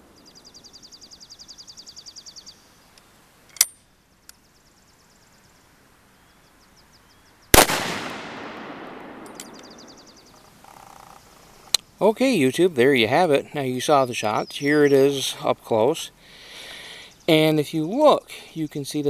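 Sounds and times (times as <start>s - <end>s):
shotgun gunshot: 7.6s - 10.0s
sharp click: 9.2s - 9.7s.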